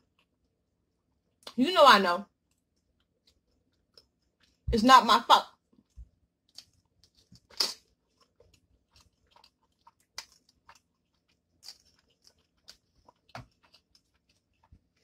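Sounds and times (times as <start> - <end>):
wet chewing and mouth smacks: 2.4 - 4.6, 5.6 - 15.0.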